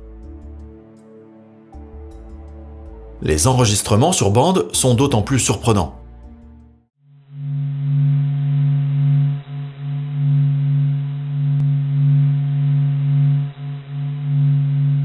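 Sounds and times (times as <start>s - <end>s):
monotone low hum: 7.1s - 15.0s.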